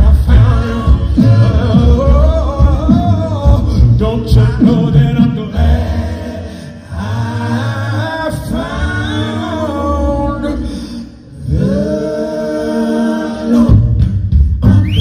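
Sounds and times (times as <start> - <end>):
mixed choir singing in harmony: 0.0 - 3.8, 5.2 - 14.3
deep bass voice: 0.0 - 6.3.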